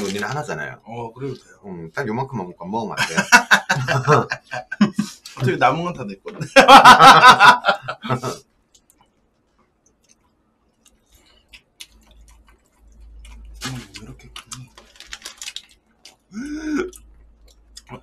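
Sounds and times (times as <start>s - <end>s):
faint chewing: 8.7s - 18.0s.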